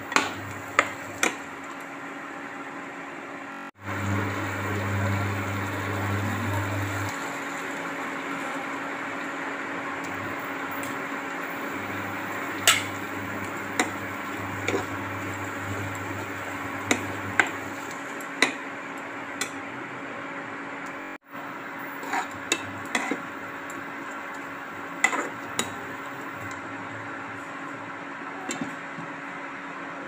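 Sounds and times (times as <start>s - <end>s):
steady hum: 0.0s - 30.0s
metal spatula scraping pan: 22.0s - 23.2s.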